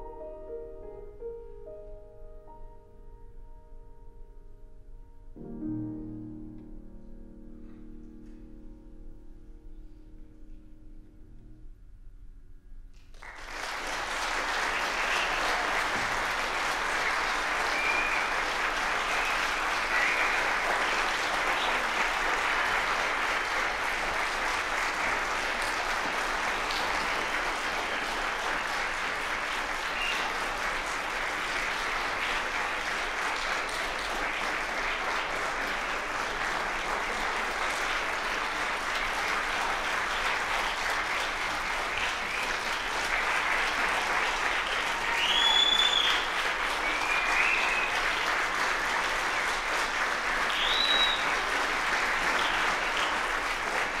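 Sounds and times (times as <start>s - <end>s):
audience applauding: 13.0s - 54.0s.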